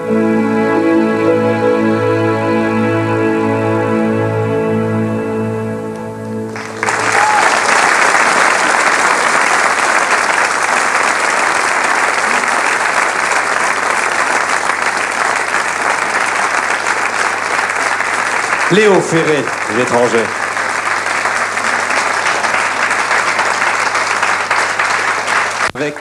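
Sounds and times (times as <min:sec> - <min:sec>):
held organ chord: 0:00.0 - 0:09.8
audience applauding: 0:06.5 - 0:26.0.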